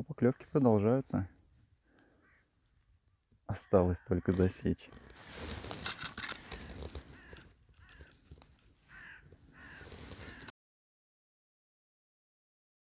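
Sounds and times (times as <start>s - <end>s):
crows cawing: 1.9s - 2.6s, 3.5s - 4.5s, 6.2s - 10.5s
brief rustle: 4.8s - 9.0s, 9.7s - 10.5s.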